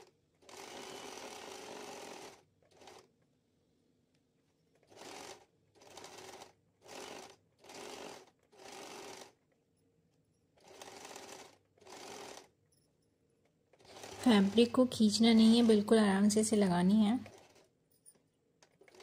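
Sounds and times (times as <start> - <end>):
electric sewing machine stitching: 0.0 - 3.1, 4.8 - 9.4, 10.6 - 12.5, 13.7 - 17.7, 18.6 - 19.0.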